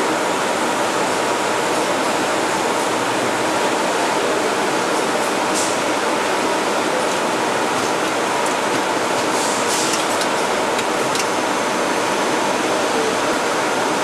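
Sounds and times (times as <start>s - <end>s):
machinery hissing: 7.5s - 14.0s.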